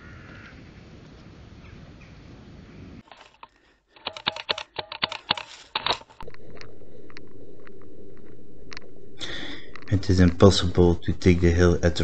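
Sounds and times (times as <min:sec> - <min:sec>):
sharp clicks: 0:03.0 - 0:10.0.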